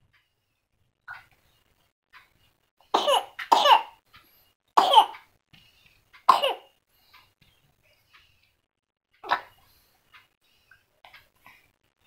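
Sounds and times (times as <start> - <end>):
infant coughing: 2.9 - 4.0, 4.8 - 5.2, 6.3 - 6.7.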